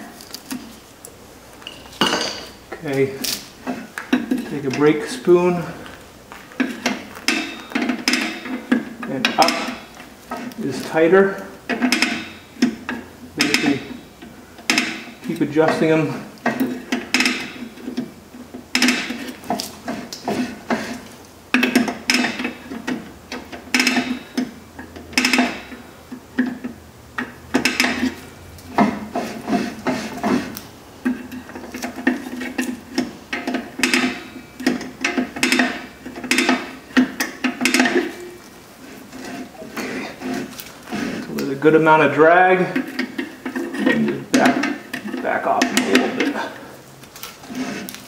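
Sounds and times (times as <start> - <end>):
metallic clicks and scrapes: 26.4 - 48.0.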